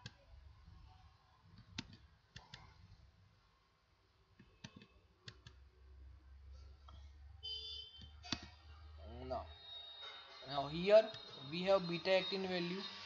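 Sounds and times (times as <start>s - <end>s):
mouse and keyboard clicks: 1.5s - 2.7s, 4.4s - 5.6s.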